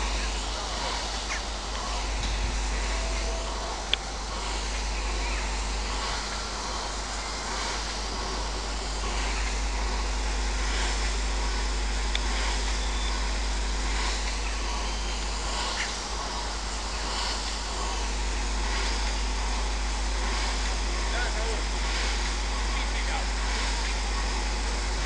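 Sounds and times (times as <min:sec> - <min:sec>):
steam locomotive hissing: 0:00.0 - 0:25.0.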